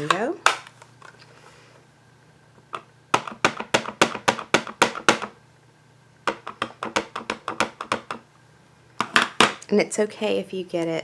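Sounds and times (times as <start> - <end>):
ink pad tapping on stamp: 3.1 - 5.4, 6.3 - 8.2.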